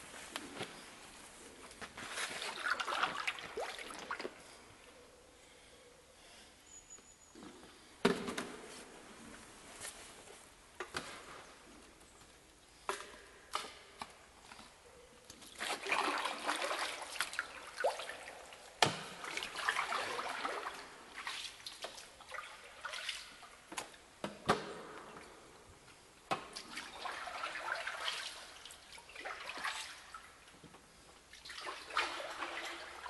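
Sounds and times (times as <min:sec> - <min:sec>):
paddle splashing water: 0:02.0 - 0:04.4, 0:15.6 - 0:23.7, 0:26.4 - 0:30.5, 0:31.3 - 0:33.0.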